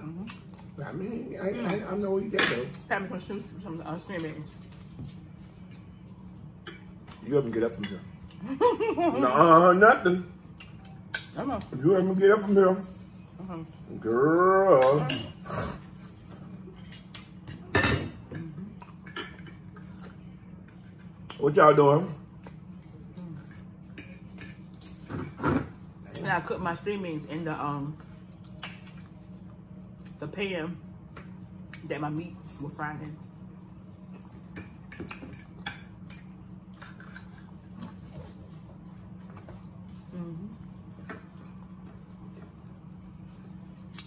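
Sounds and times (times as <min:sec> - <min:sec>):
steady low hum: 0:00.0 - 0:44.0
cutlery scraping on plates: 0:34.6 - 0:37.5.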